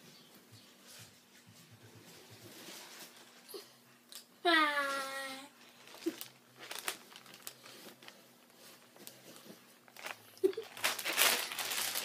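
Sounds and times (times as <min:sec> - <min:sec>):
bedding rustling: 0:05.8 - 0:12.0.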